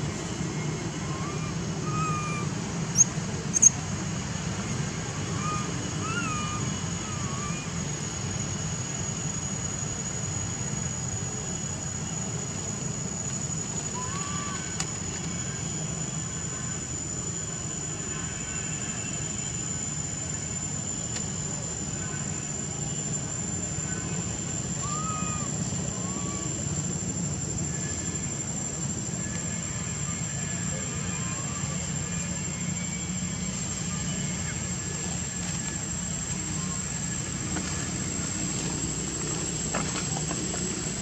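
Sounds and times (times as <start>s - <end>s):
high-pitched insect whine: 0.0s - 41.0s
outdoor background hum: 0.0s - 41.0s
infant monkey cooing: 1.1s - 2.5s.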